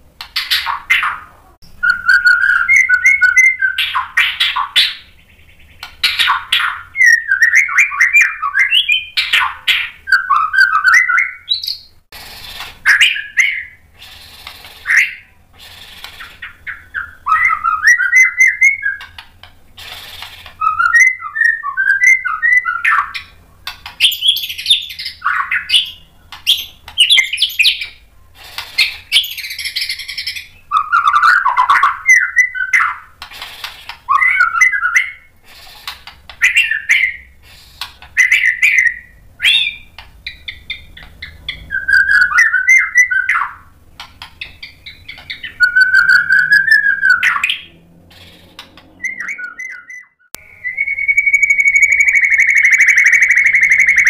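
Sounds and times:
bird singing whistled phrases: 0.6 - 11.9, 12.9 - 13.8, 14.8 - 19.1, 20.6 - 23.3, 24.0 - 28.0, 28.8 - 33.0, 34.1 - 35.3, 38.2 - 43.6, 44.6 - 48.4, 49.0 - 54.0.

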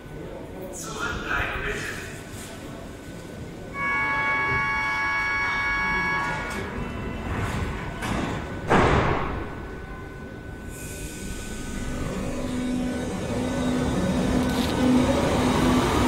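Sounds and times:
train doors closing thump: 7.4 - 9.8
electric train drive whine: 9.5 - 16.0.

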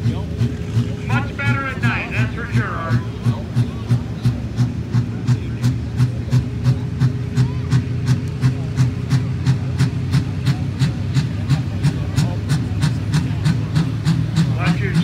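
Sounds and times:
tractor engine pulsing: 0.0 - 15.0.

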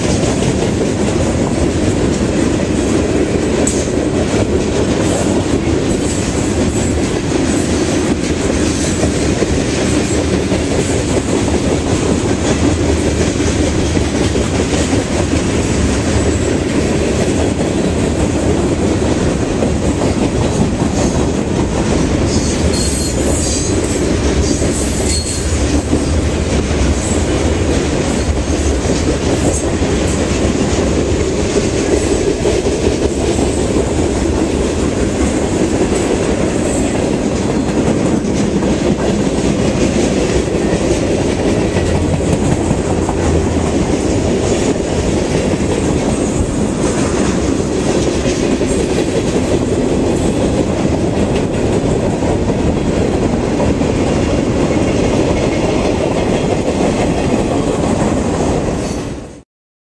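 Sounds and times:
train rumble: 0.0 - 59.4
train wheels clacking over rail joints: 0.0 - 59.4
high wheel squeals: 22.3 - 25.6.

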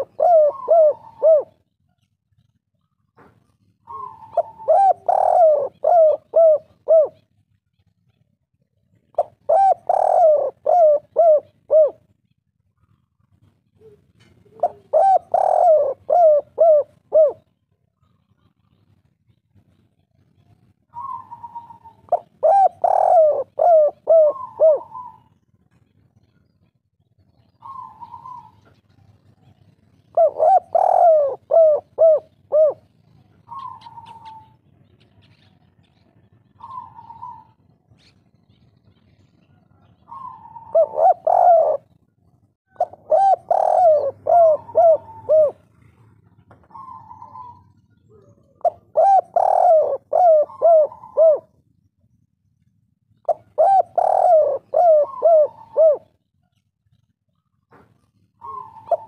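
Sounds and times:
dove cooing: 0.0 - 7.4, 8.9 - 12.2, 12.8 - 26.4, 27.4 - 51.6, 53.2 - 59.0.

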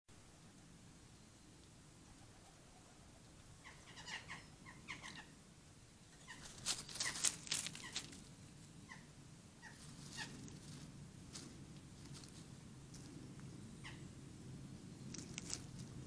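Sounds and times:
magpies calling: 2.1 - 5.4, 6.1 - 10.6, 13.7 - 14.1
harsh noisy bird calls: 2.2 - 5.4.

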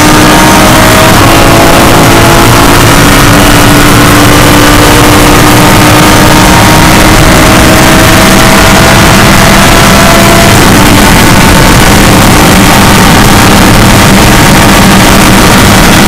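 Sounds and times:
race car engine at full throttle: 0.0 - 16.0.

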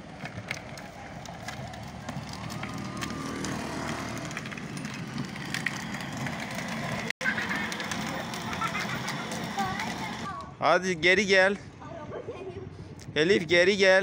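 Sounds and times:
wheels rolling on asphalt: 0.0 - 10.6.

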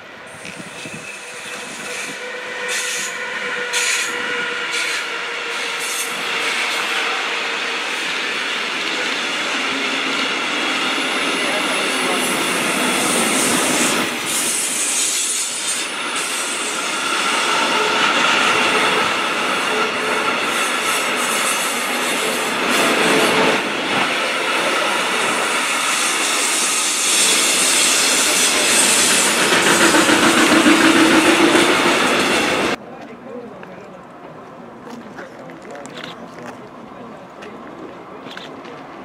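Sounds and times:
freight train wheels rumbling: 0.0 - 32.8
thin wheel squeal: 0.7 - 6.8.

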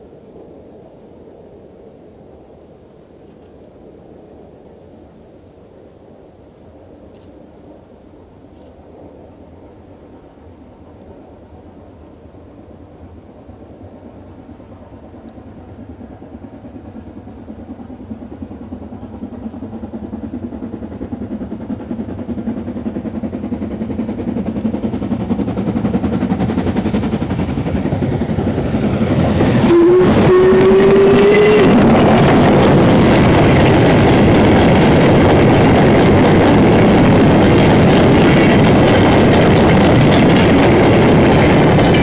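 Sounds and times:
train rumble: 0.0 - 42.0
steam locomotive exhaust: 7.5 - 42.0
steam whistle: 29.5 - 32.3.

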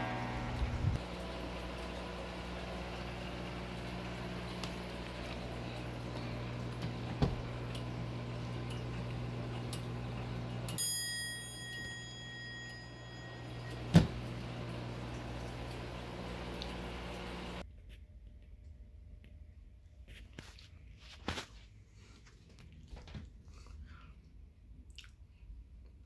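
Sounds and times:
steady low hum: 0.0 - 10.8
clock bell strike: 10.7 - 14.5.

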